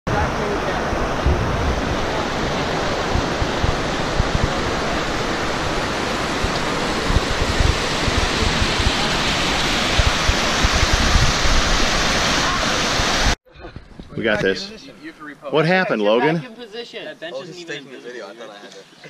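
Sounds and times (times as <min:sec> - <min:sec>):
river rapids rushing: 0:00.1 - 0:13.4
wind buffeting microphone: 0:00.1 - 0:14.3.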